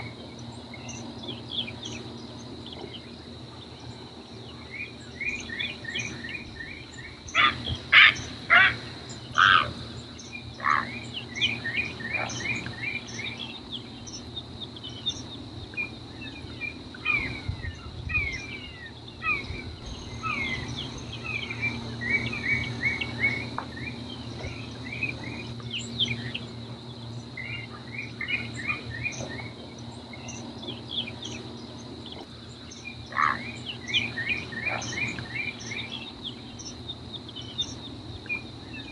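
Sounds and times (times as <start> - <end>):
high insect drone: 0.0 - 38.9
loud animal calls: 7.3 - 9.8, 10.6 - 11.0.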